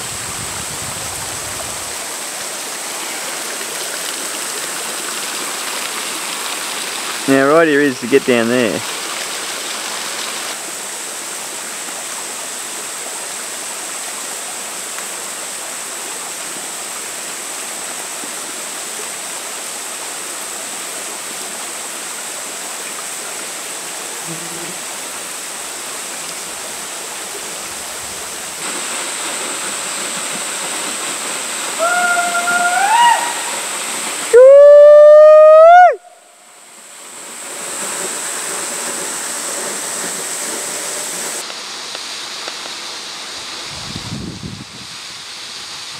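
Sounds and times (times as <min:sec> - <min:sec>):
waterfall rushing over rocks: 0:00.0 - 0:45.9
rising pitched call: 0:31.8 - 0:33.6, 0:34.3 - 0:36.3.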